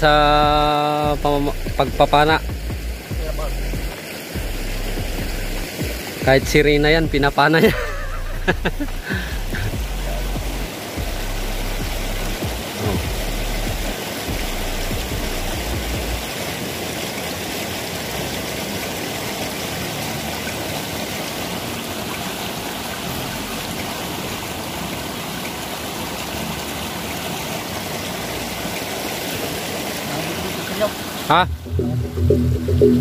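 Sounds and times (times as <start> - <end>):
stream water rushing: 0.0 - 33.0
low rumble: 31.5 - 33.0.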